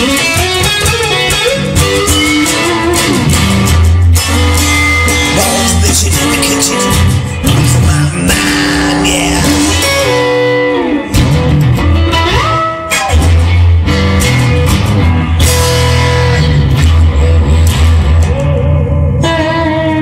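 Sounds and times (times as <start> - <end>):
regular drum beats: 0.0 - 10.3
electric guitar lead with bends: 0.0 - 20.0
low bass: 1.3 - 20.0.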